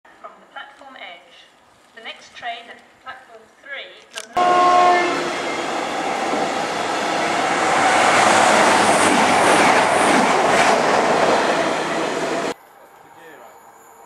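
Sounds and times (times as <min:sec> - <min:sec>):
train horn: 0:04.4 - 0:08.4
trains passing at speed: 0:04.4 - 0:14.0.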